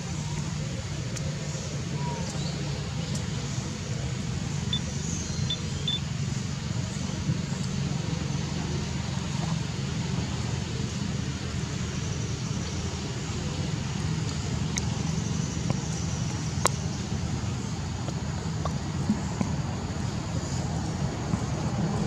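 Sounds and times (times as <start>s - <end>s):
low outdoor rumble: 0.0s - 22.0s
short high chirps: 4.7s - 6.0s.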